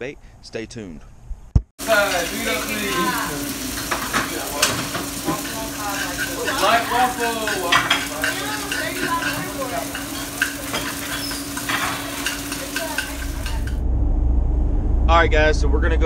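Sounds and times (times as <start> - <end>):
food sizzling on a grill: 1.8 - 13.8
utensils and plates clattering: 1.8 - 13.8.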